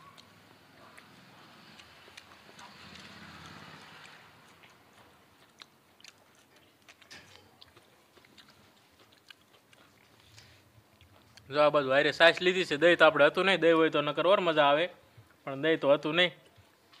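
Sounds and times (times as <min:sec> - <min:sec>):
mouth clicks and smacks: 0:00.0 - 0:11.5
person chewing: 0:00.0 - 0:11.5.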